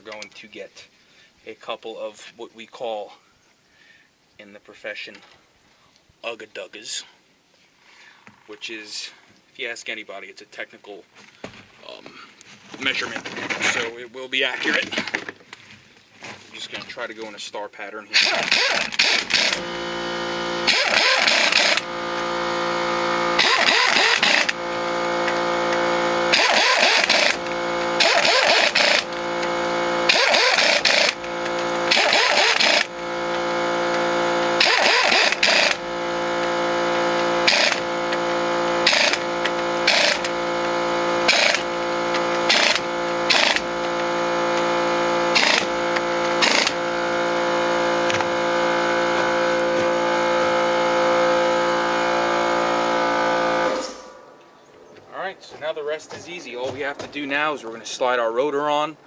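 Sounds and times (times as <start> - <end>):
steady hum: 18.0 - 54.6
impact wrench rattling bursts: 18.1 - 54.0.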